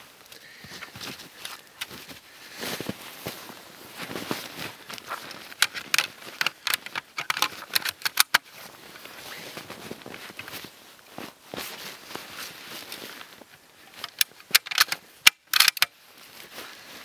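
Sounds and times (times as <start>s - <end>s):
soft rustling: 0.0s - 15.2s, 15.9s - 17.0s
rifle metallic clicks and rattles: 5.4s - 8.7s, 13.9s - 16.0s.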